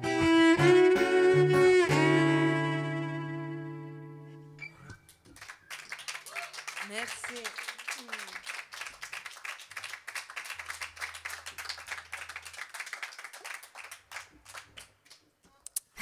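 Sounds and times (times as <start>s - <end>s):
audience applauding: 5.2s - 15.3s.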